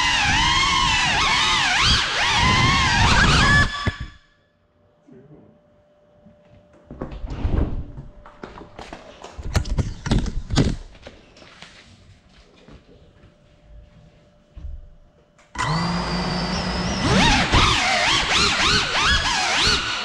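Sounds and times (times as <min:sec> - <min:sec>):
drone motors whining: 0:00.0 - 0:04.3, 0:15.6 - 0:20.0.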